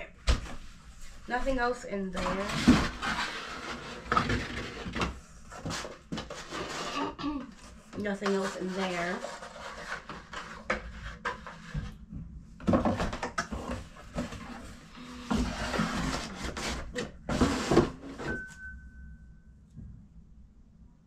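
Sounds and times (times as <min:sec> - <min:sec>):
cardboard rustling and knocking: 0:12.6 - 0:14.7
faint steady tone: 0:18.3 - 0:20.7.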